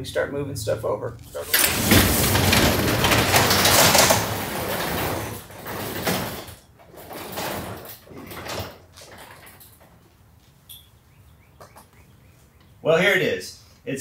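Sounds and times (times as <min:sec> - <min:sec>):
garage door opener rumbling: 0:01.2 - 0:09.9
light footsteps on concrete: 0:11.5 - 0:12.8.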